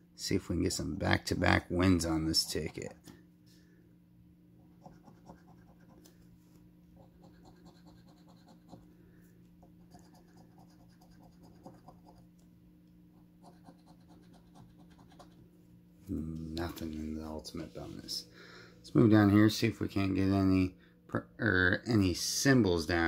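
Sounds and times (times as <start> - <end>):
coin scratching lottery ticket: 7.2 - 8.8, 13.5 - 15.4.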